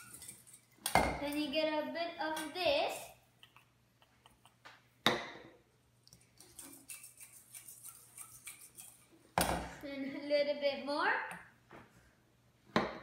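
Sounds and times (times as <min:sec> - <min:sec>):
utensil clinking on metal bowl: 0:00.0 - 0:01.2.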